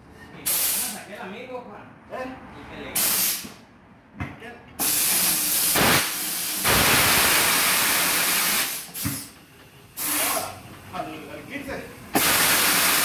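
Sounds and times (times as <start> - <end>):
compressed air hissing: 0.5 - 1.0, 3.0 - 3.6, 4.8 - 9.3, 10.0 - 10.5, 12.1 - 13.0.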